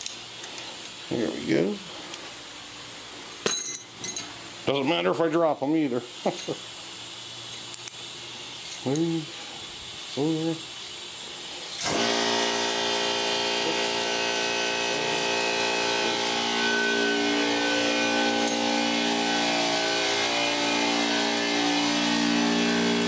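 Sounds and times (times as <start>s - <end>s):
electric air compressor running: 5.7s - 23.0s.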